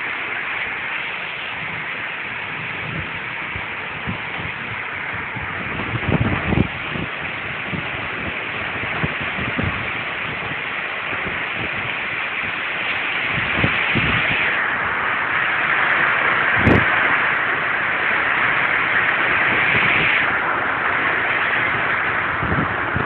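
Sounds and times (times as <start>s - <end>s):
wind and rain rushing: 0.0s - 23.0s
wind buffeting microphone: 0.0s - 23.0s.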